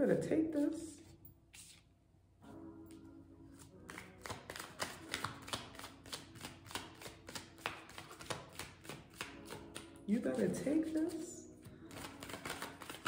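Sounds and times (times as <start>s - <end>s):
cards being shuffled: 1.5s - 1.9s, 3.6s - 13.0s.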